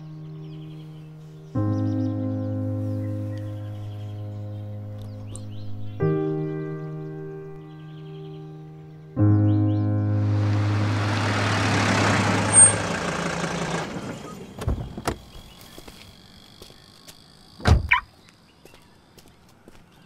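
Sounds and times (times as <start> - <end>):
car door shutting thump: 14.6 - 15.2.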